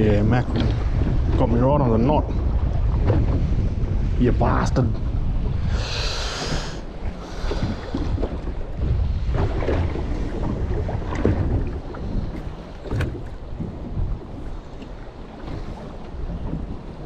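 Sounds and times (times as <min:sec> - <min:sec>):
water lapping against hull: 0:00.0 - 0:17.0
wind buffeting microphone: 0:00.0 - 0:17.0.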